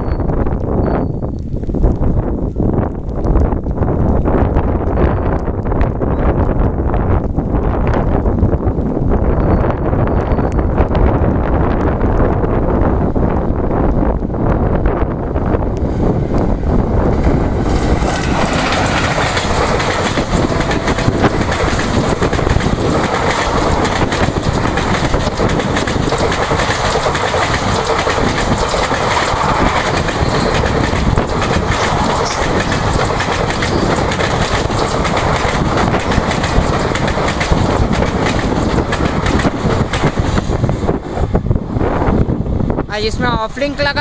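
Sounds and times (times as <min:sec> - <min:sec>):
train passing at speed: 0:14.2 - 0:44.0
wheels clicking over track: 0:15.4 - 0:41.4.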